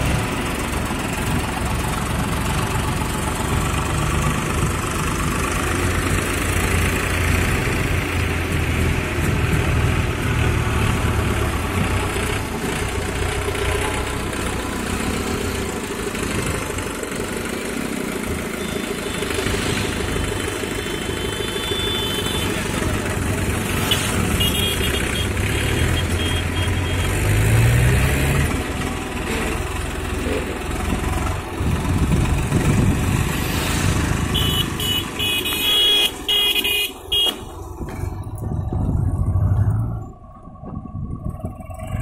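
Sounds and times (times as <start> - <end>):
tractor diesel engines running: 0.0 - 42.0
vehicle horn honking: 20.9 - 22.7, 23.8 - 27.2, 34.3 - 37.5.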